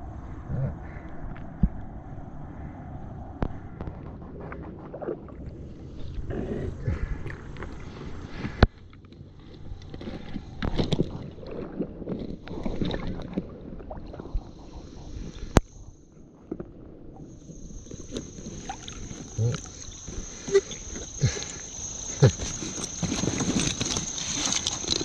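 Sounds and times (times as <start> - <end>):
water splashing against inflatable float: 9.6 - 15.7, 16.5 - 25.0.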